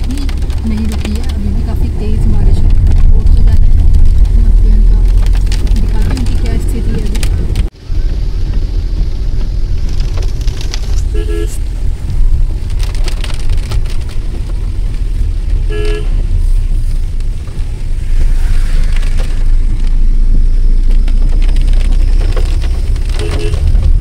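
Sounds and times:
car driving on wet road: 0:00.0 - 0:24.0
car horn toots: 0:11.0 - 0:11.6, 0:15.6 - 0:16.2, 0:23.1 - 0:24.0.

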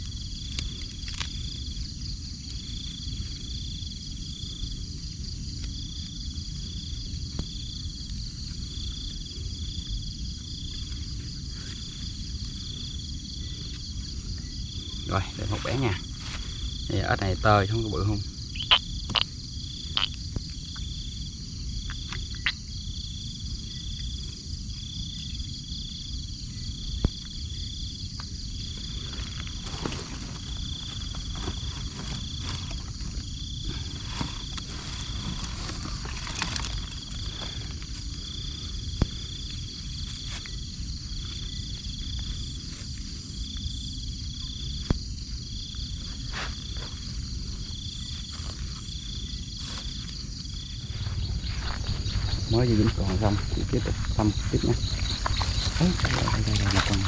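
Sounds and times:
crickets chirping: 0:00.0 - 0:57.0
high insect trill: 0:00.0 - 0:57.0
low rumble: 0:46.9 - 0:57.0.

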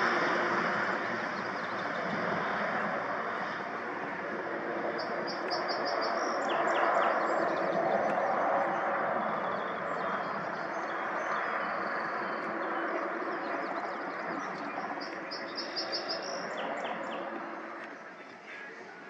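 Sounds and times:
propeller airplane engines droning: 0:00.0 - 0:19.0
bird chirping: 0:05.0 - 0:07.8, 0:09.4 - 0:18.3.

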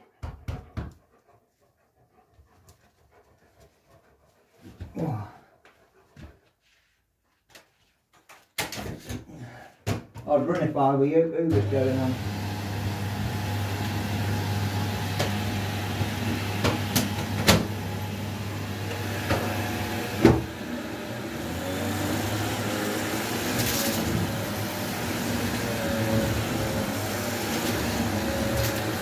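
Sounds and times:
vacuum cleaner running: 0:11.5 - 0:29.0.

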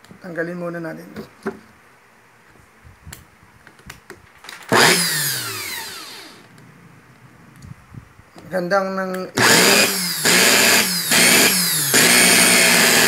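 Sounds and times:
electric drill motor whining: 0:04.7 - 0:06.5, 0:09.4 - 0:13.0.

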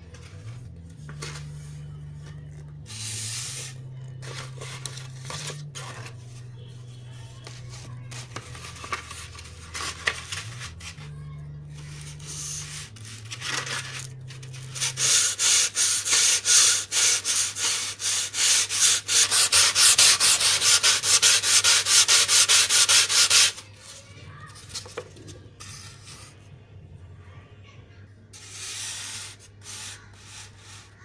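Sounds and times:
sandpaper rubbing foam: 0:14.6 - 0:23.6, 0:28.4 - 0:31.0.

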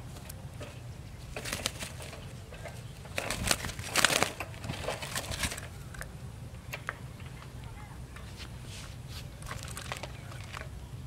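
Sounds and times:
doves fluttering in a cage: 0:00.0 - 0:06.2, 0:08.3 - 0:10.9.

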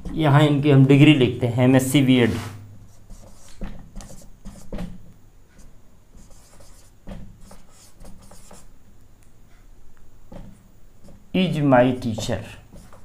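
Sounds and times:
marker writing on whiteboard: 0:02.3 - 0:08.8, 0:10.3 - 0:13.0.

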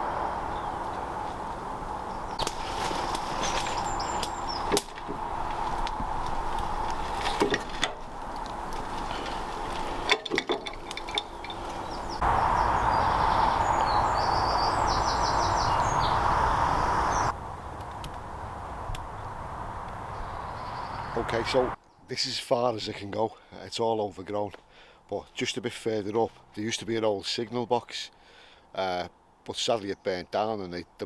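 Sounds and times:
birds chirping: 0:00.0 - 0:17.4, 0:18.3 - 0:23.3
sharp clicks and knocks: 0:04.2 - 0:11.9.

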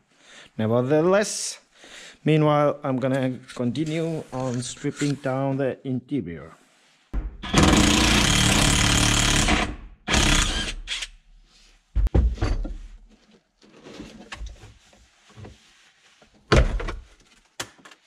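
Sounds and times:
power tool running: 0:07.4 - 0:11.1
knocks and rattles: 0:12.0 - 0:12.9.

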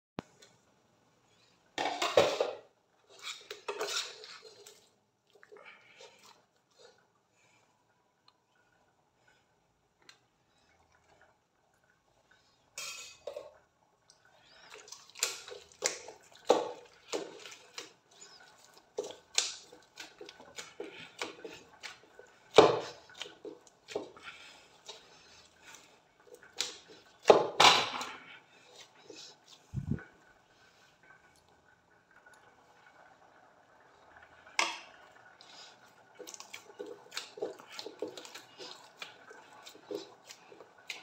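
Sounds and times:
dough squelching: 0:14.4 - 0:30.1, 0:35.4 - 0:41.0.

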